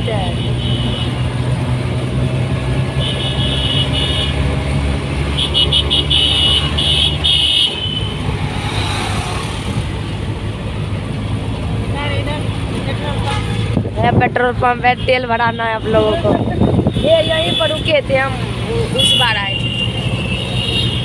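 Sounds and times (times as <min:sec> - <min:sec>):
auto-rickshaw engine running: 0:00.0 - 0:21.0
road noise: 0:00.0 - 0:21.0
vehicle horns honking: 0:00.1 - 0:01.3, 0:02.9 - 0:04.5, 0:05.3 - 0:08.3, 0:13.2 - 0:13.8, 0:14.9 - 0:18.1, 0:18.9 - 0:21.0.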